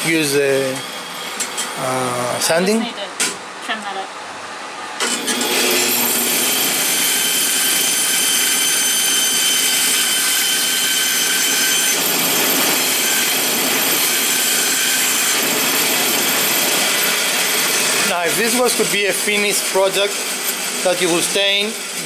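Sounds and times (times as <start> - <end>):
bandsaw cutting wood: 5.0 - 22.0.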